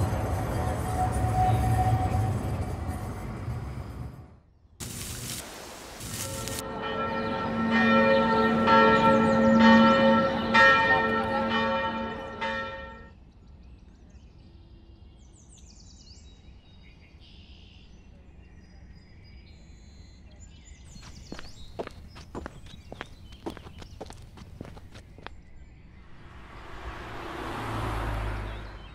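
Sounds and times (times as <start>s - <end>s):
church bell tolling: 6.6s - 13.1s.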